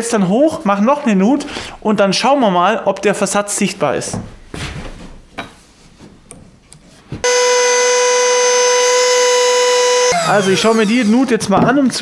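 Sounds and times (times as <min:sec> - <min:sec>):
router whining: 0:07.2 - 0:11.4.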